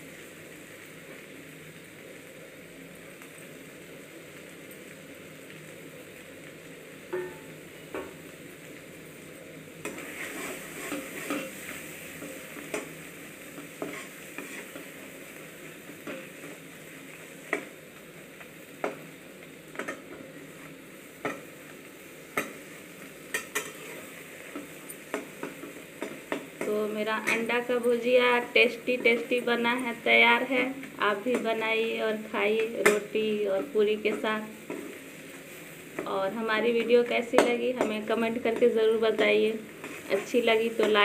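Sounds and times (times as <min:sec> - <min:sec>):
frying sizzle: 0:00.0 - 0:41.0
metal spatula scraping pan: 0:09.9 - 0:11.6.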